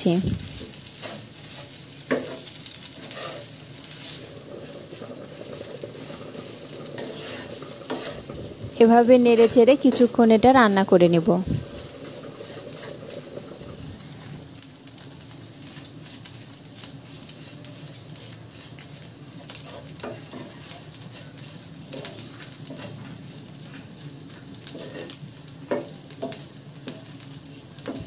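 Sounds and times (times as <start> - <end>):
oil sizzling: 0.0 - 28.0
wooden spatula scraping pan: 0.6 - 10.2, 11.7 - 14.4, 17.3 - 23.8, 24.6 - 27.0.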